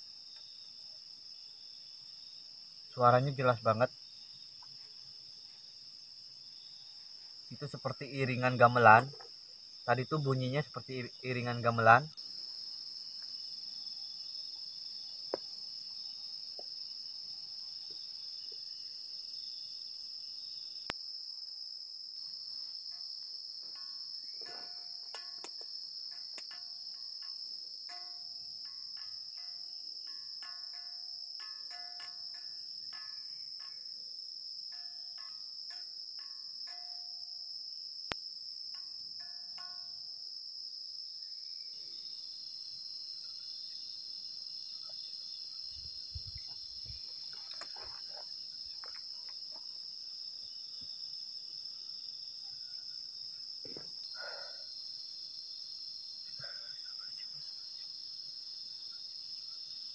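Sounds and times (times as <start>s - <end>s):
crickets and insects chirping: 0.0s - 59.9s.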